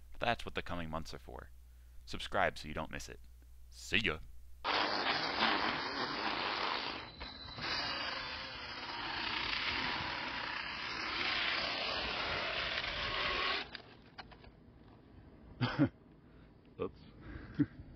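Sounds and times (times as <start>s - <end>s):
propellers whirring: 4.7s - 14.5s.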